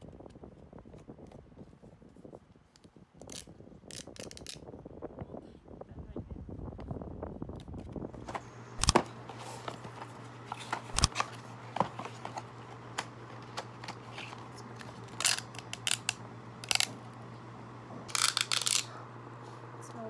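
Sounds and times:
steady low hum: 0.0 - 20.0
paper packaging crinkling: 8.3 - 17.0, 18.1 - 19.0.

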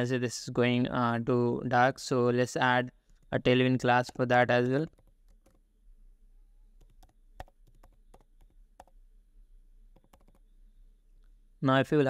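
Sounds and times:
computer keyboard typing: 4.8 - 5.6, 6.8 - 9.0, 9.9 - 10.5.

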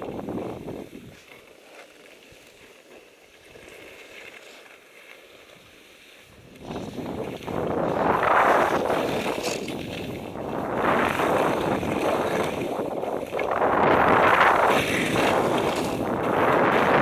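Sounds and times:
skis scraping over snow: 0.0 - 17.0
wind buffeting microphone: 6.4 - 17.0.

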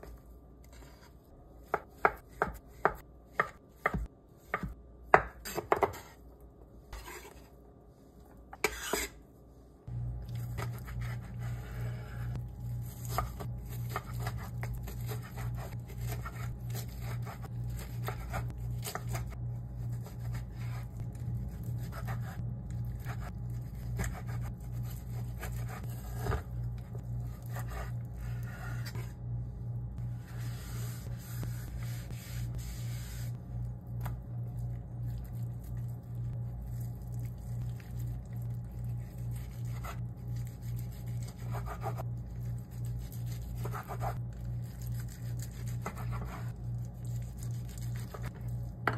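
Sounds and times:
knife cutting on wooden board: 8.6 - 9.2
low pulsing hum: 9.8 - 48.9.

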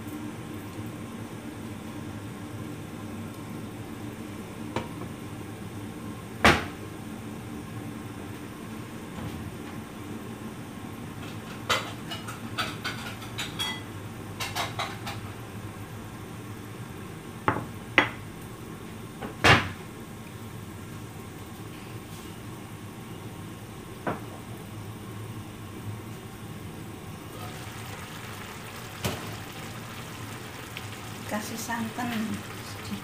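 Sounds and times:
cookware and utensils clinking: 11.6 - 15.2.

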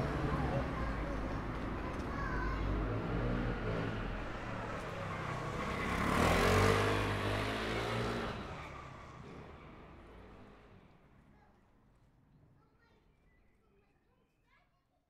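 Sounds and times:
low traffic rumble: 0.0 - 11.4
car passing by: 2.6 - 10.9.

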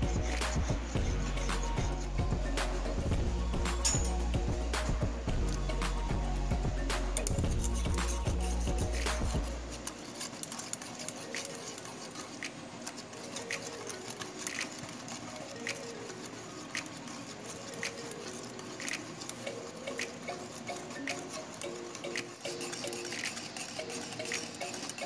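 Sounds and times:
background music: 0.0 - 25.0
whisk clicking against metal pot: 7.2 - 25.0.

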